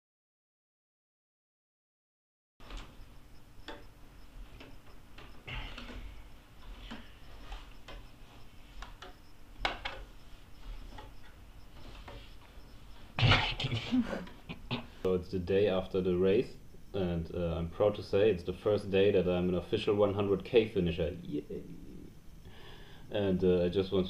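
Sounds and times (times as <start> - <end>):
low steady hum: 2.6 - 24.0
light clicks and knocks: 8.8 - 12.6.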